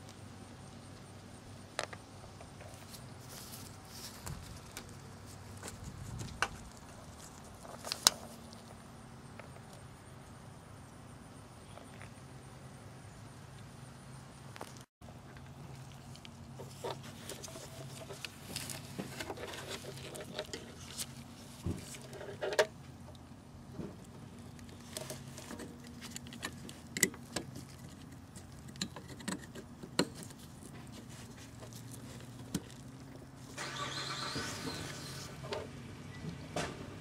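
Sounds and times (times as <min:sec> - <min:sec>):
scraping and rustling: 0:02.6 - 0:08.8, 0:14.7 - 0:22.8, 0:23.8 - 0:35.7.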